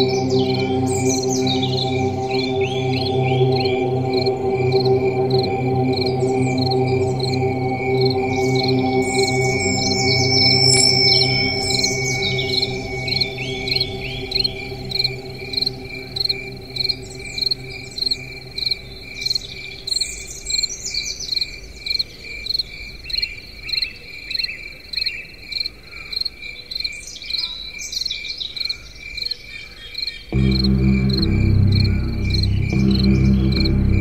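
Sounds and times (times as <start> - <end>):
music with strong bass: 0.0 - 18.6, 30.4 - 34.0
low musical drone: 0.0 - 20.8, 30.3 - 34.0
steady high insect chirp: 0.0 - 27.4.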